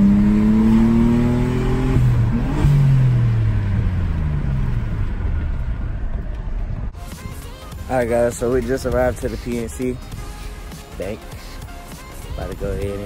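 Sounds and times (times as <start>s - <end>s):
car engine revving: 0.0s - 6.9s.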